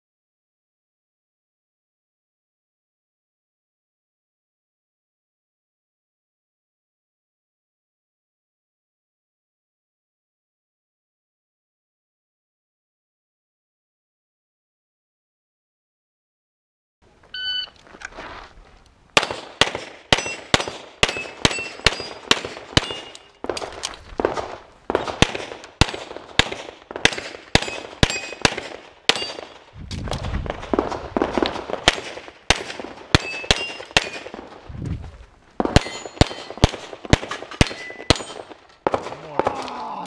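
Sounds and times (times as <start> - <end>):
shot timer beep: 17.3 - 17.8
rapid pistol shots: 19.2 - 29.7, 30.5 - 34.6, 35.6 - 39.7
steel targets ringing: 20.2 - 23.4, 27.6 - 28.4, 29.1 - 29.6, 33.2 - 34.3, 35.8 - 36.6, 37.6 - 38.5.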